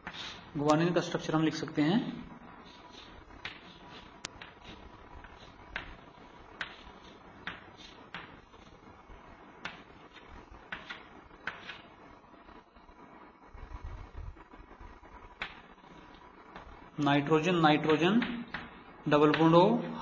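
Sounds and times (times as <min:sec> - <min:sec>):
chalk tapping on chalkboard: 0:00.0 - 0:00.4, 0:02.6 - 0:08.7, 0:09.6 - 0:11.9, 0:17.8 - 0:19.6
faint hiss: 0:00.0 - 0:20.0.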